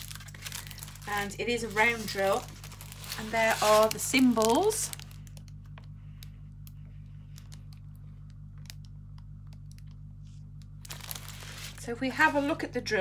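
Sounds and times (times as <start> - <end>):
plastic film clicking and crackling: 0.0 - 10.0, 10.6 - 12.2
steady low hum: 0.0 - 13.0.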